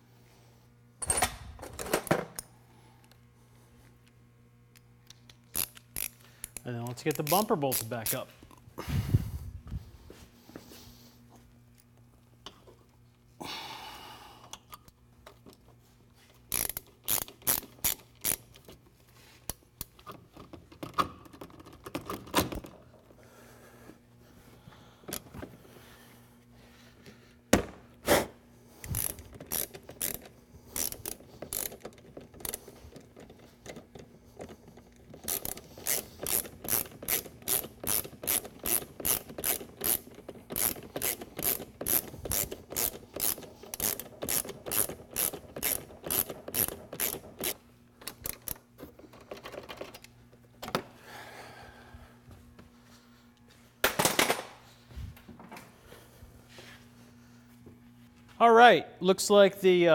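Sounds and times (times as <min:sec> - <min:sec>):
ratchet wrench clicking: 0:05.4 - 0:08.2, 0:16.5 - 0:18.7, 0:28.8 - 0:33.8, 0:35.1 - 0:48.6.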